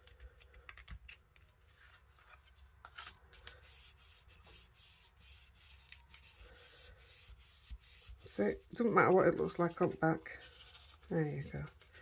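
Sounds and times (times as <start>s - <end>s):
hands rubbing paper: 3.0s - 12.0s.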